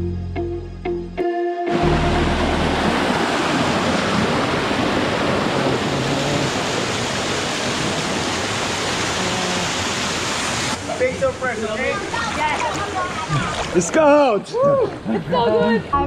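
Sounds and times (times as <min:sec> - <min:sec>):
stream rushing over boulders: 0:01.8 - 0:14.3.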